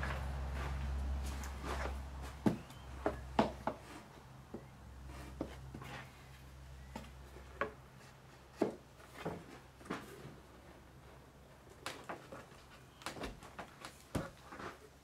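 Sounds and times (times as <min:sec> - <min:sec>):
wooden knocks and scrapes: 0:00.0 - 0:06.3, 0:06.9 - 0:10.4.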